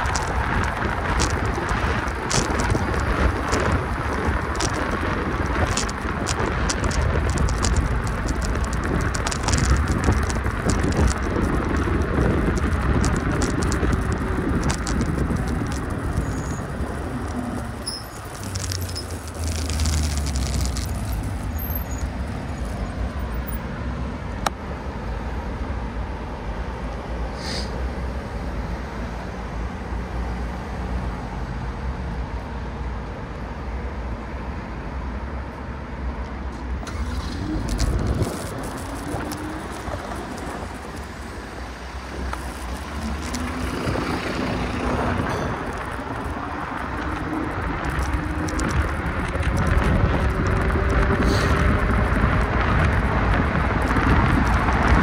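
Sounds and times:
small clicks and rattles: 0:00.0 - 0:22.7, 0:37.0 - 0:55.0
road rumble and wind noise: 0:00.0 - 0:55.0.

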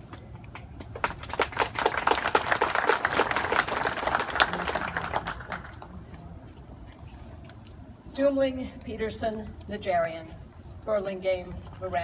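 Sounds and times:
audience applauding: 0:01.1 - 0:05.8.

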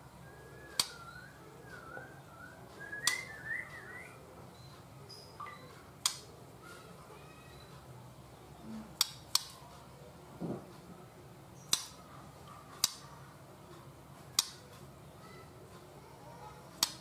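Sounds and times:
sharp clicks: 0:00.7 - 0:01.2, 0:02.8 - 0:03.3, 0:06.0 - 0:06.3, 0:09.0 - 0:09.7, 0:12.8 - 0:13.1, 0:16.8 - 0:17.0.

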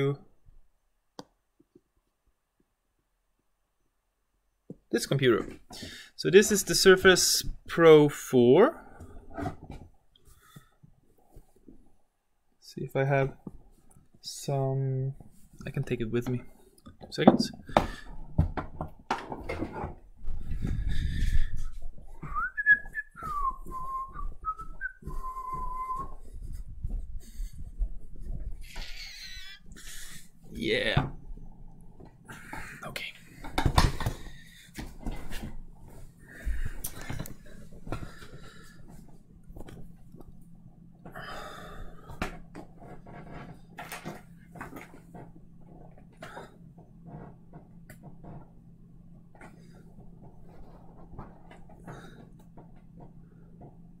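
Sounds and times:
low steady hum: 0:05.0 - 0:54.0
footsteps knocking: 0:20.4 - 0:29.0
person whistling: 0:22.2 - 0:26.3.

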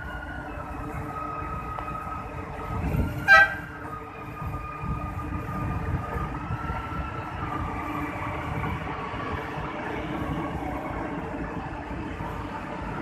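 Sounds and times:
train rumbling on rails: 0:00.0 - 0:13.0
train horn toot: 0:03.2 - 0:03.8.

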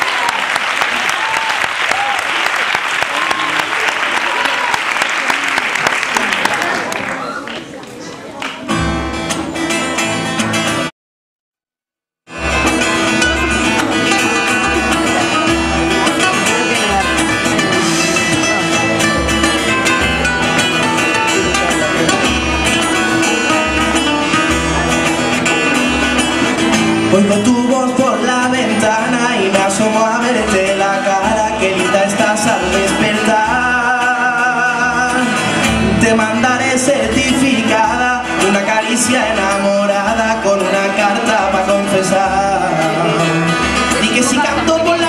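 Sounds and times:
acoustic guitars strumming: 0:08.6 - 0:10.9, 0:12.3 - 0:45.0.

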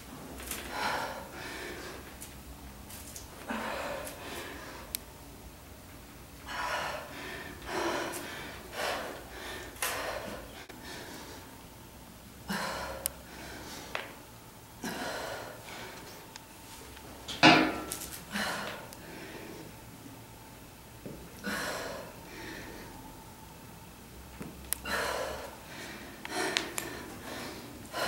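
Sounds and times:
woman breathing hard: 0:00.5 - 0:02.2, 0:03.4 - 0:05.0, 0:06.4 - 0:11.6, 0:12.4 - 0:14.2, 0:14.8 - 0:16.2, 0:18.2 - 0:19.8, 0:21.4 - 0:23.2, 0:24.7 - 0:28.0.

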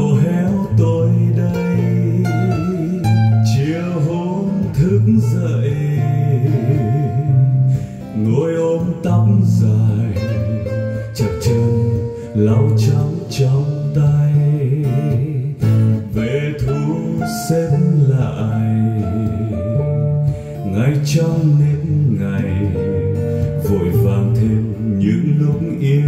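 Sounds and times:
song with prominent guitar: 0:00.0 - 0:26.0.

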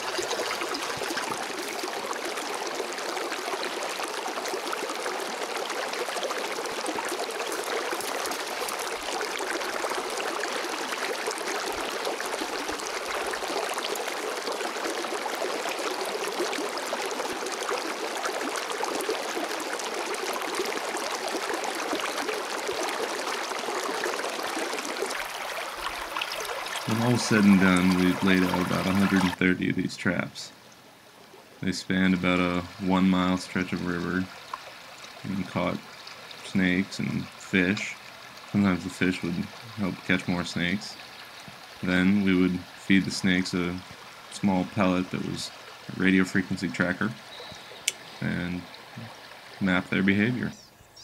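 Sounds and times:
river flowing over rocks: 0:00.0 - 0:29.4.

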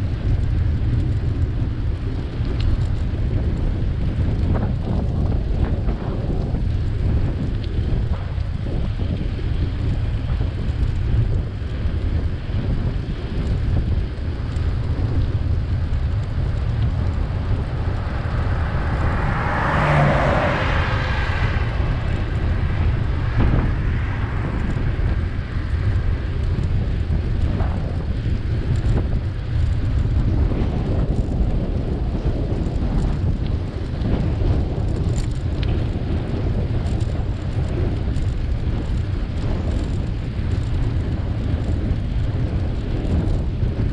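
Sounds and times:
wind rumble on microphone: 0:00.0 - 0:43.9
vehicle passing: 0:16.1 - 0:26.4.

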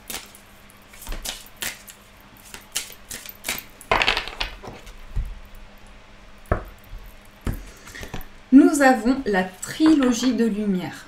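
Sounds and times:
cards being shuffled: 0:00.0 - 0:05.0
deck knocking on tabletop: 0:03.9 - 0:05.3, 0:06.5 - 0:06.8.

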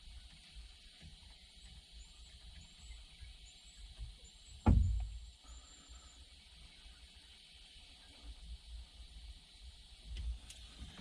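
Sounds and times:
sharp knock: 0:04.6 - 0:05.1.

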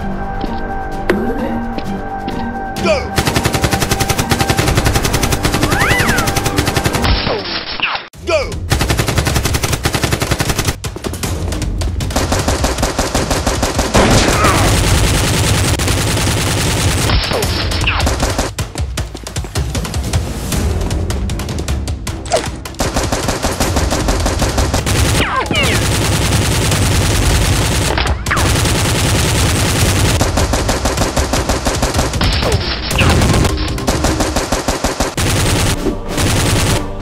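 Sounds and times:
action background music: 0:00.0 - 0:07.6, 0:08.2 - 0:37.0
automatic gunfire bursts: 0:03.2 - 0:07.0, 0:08.7 - 0:10.8, 0:12.2 - 0:17.2, 0:22.8 - 0:32.3, 0:32.9 - 0:37.0.

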